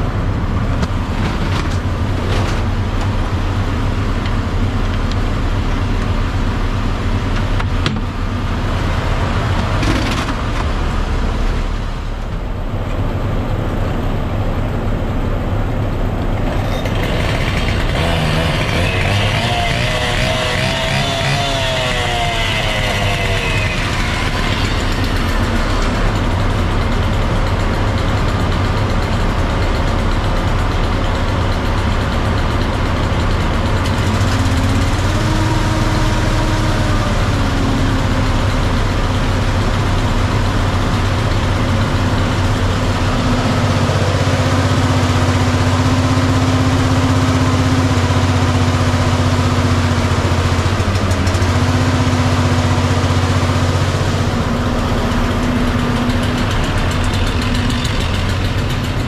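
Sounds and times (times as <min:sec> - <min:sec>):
fire truck engine idling: 0:12.0 - 0:19.3, 0:22.0 - 0:59.0.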